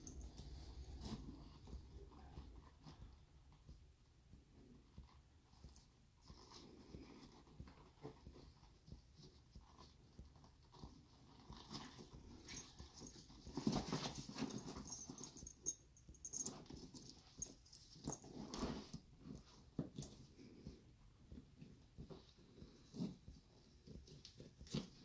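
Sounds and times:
leather bag rustling and creaking: 0:11.7 - 0:15.5.

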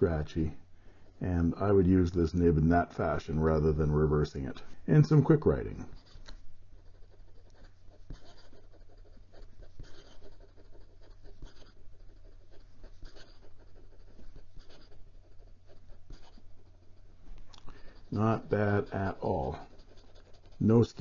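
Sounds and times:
pen nib scratching paper: 0:05.2 - 0:21.0.

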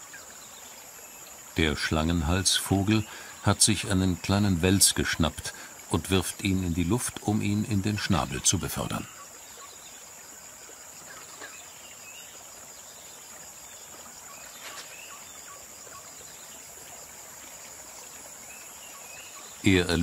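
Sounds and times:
faint bird chirps: 0:08.2 - 0:17.0, 0:18.0 - 0:20.0.

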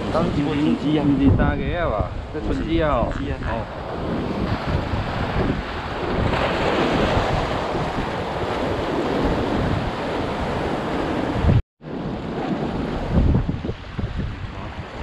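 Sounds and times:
wind buffeting microphone: 0:00.0 - 0:15.0
surf breaking against rocks: 0:02.9 - 0:14.4.

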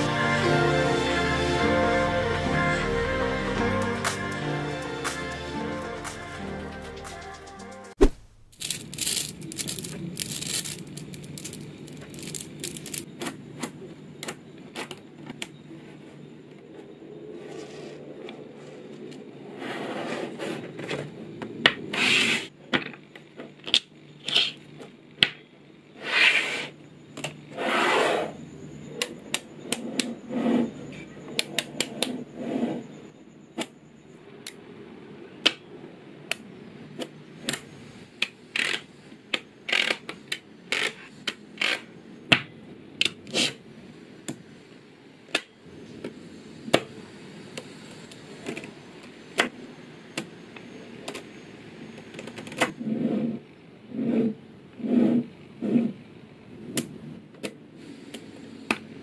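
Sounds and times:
magnet balls rattling slides: 0:08.0 - 0:13.1
magnet balls clicking: 0:08.4 - 0:13.1.

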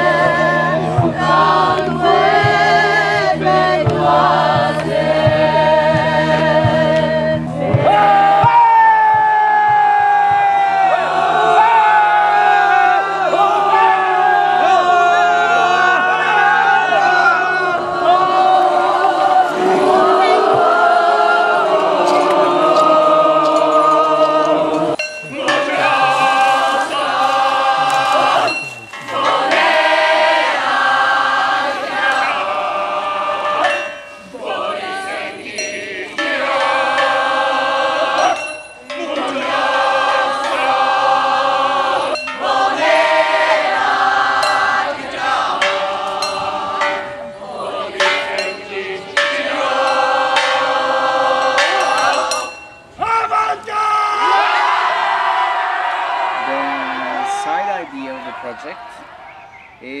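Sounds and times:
group of people singing: 0:00.0 - 0:53.0.

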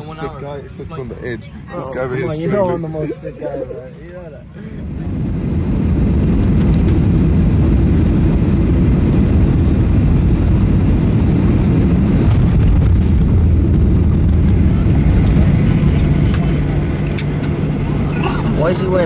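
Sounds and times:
jet engine cabin rumble: 0:00.0 - 0:19.0.

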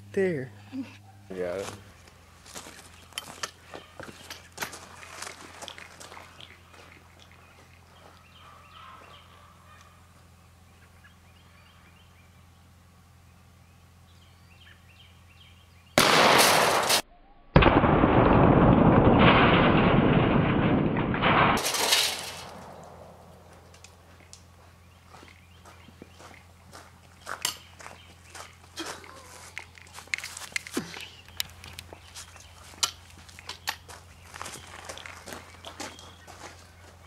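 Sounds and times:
shotgun blast: 0:16.0 - 0:17.0, 0:17.6 - 0:23.3.

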